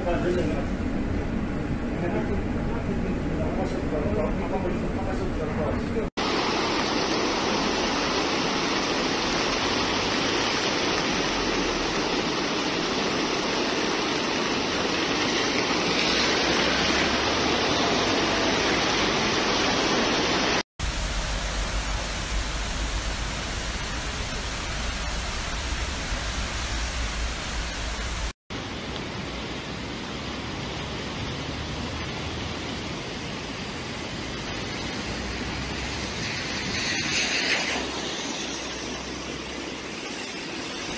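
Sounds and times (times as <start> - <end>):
floodwater rushing: 6.2 - 40.9
heavy low rumble: 20.8 - 28.3.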